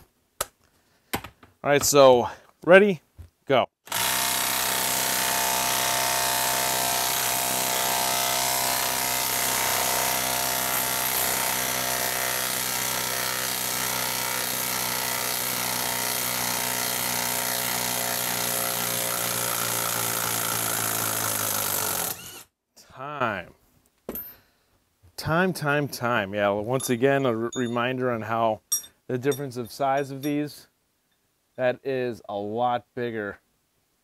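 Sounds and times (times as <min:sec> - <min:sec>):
impact wrench hammering: 0:28.7 - 0:30.4.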